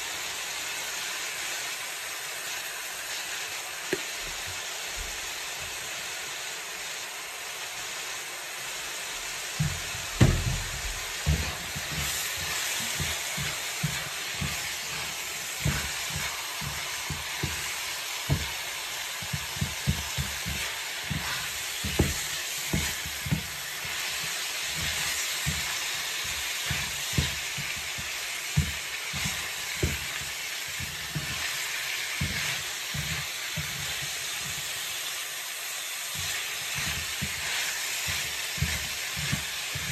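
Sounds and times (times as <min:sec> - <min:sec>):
meat and vegetables sizzling: 0:00.0 - 0:39.9
wooden spatula scraping a pan: 0:09.3 - 0:35.2, 0:35.8 - 0:39.9.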